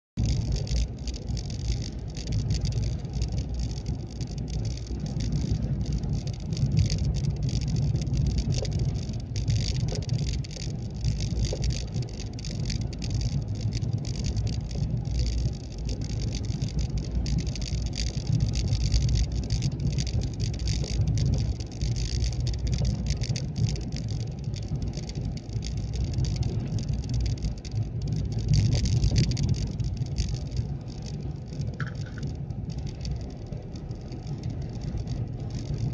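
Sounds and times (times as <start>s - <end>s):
vehicle engine and tyres rumbling: 0.1s - 35.9s
constant hiss: 0.2s - 35.9s.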